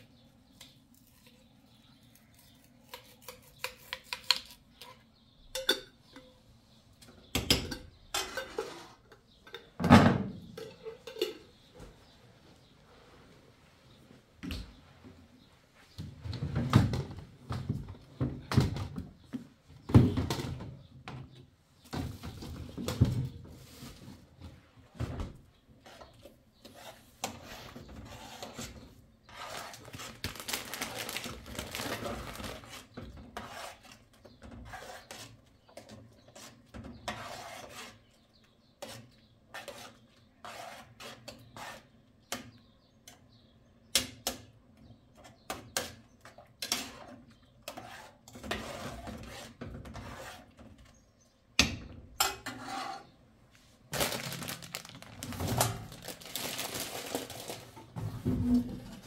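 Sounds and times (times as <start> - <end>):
spoon stirring and scraping in pot: 0.5 - 9.8, 10.5 - 11.8, 25.6 - 30.3, 31.7 - 43.4, 45.1 - 51.2, 52.2 - 53.2.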